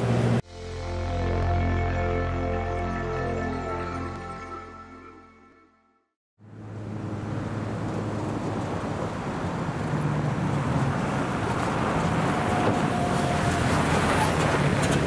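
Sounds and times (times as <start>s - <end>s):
truck engine hum: 6.4s - 15.0s
tyres on dirt track: 6.4s - 15.0s.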